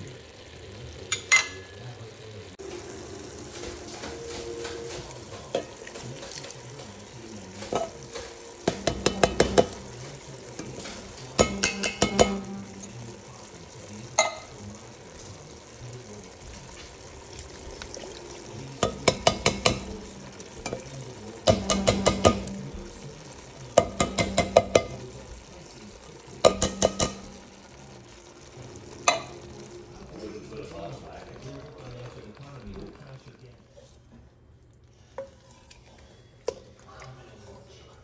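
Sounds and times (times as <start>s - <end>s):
meat sizzling: 0.0s - 38.0s
metal cans tapping pot rim: 7.6s - 10.0s, 10.6s - 12.9s, 18.8s - 22.7s, 23.8s - 25.1s, 26.4s - 27.4s.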